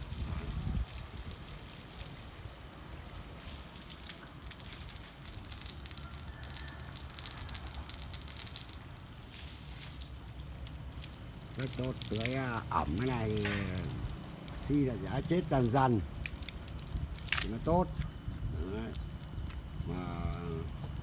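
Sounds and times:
hose water spraying on concrete: 0.0 - 20.7.

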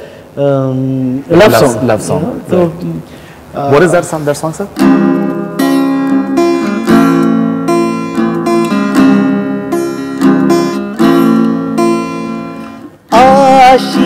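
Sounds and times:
acoustic guitar strumming: 4.7 - 14.0.

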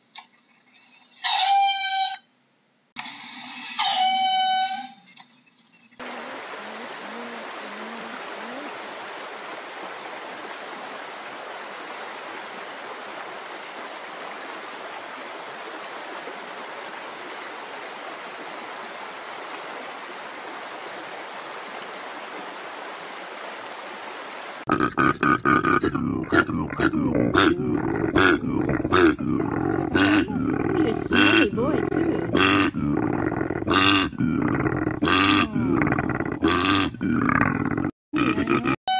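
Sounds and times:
shallow stream rushing: 6.0 - 24.7.

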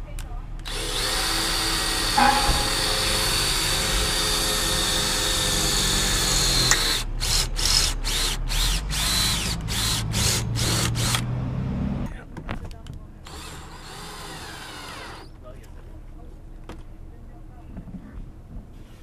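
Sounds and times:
cordless drill drilling steel: 0.6 - 11.2, 13.2 - 15.3.

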